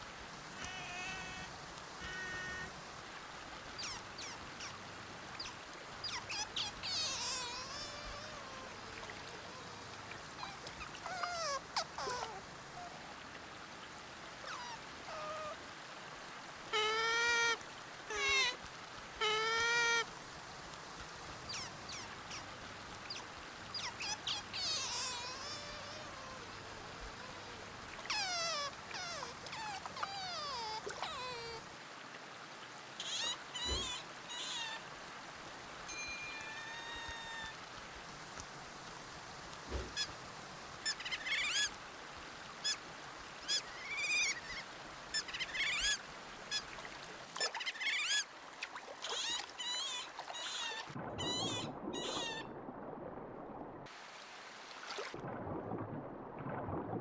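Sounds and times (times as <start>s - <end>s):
otter wavering squeals: 3.8s - 4.8s, 5.4s - 12.9s, 14.4s - 15.6s, 21.5s - 22.4s, 23.1s - 31.6s, 33.0s - 34.8s, 35.9s - 37.6s, 40.8s - 41.7s, 43.4s - 46.7s, 47.4s - 48.3s, 49.0s - 52.5s
otters squeaking and chirping: 3.8s - 4.8s, 5.4s - 9.7s, 23.1s - 31.6s, 33.0s - 34.8s, 40.8s - 41.7s, 43.4s - 46.6s, 47.4s - 48.2s, 49.0s - 52.4s.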